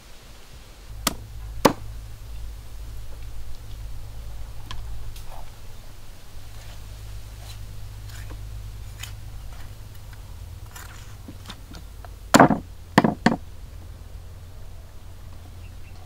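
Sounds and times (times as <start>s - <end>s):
cleaver chopping on wooden block: 1.0s - 1.8s, 12.3s - 13.4s.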